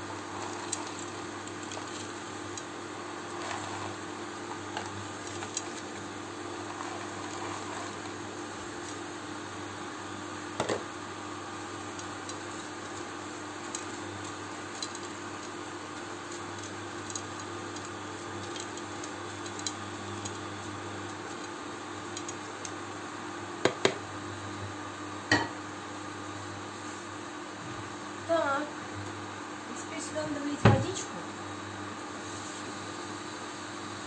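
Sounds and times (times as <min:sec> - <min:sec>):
spatula scraping a frying pan: 0:03.3 - 0:04.8, 0:06.6 - 0:08.2.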